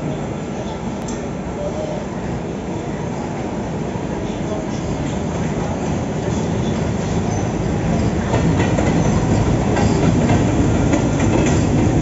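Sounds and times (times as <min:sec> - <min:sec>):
train wheels clicking over rail joints: 0:06.8 - 0:12.0.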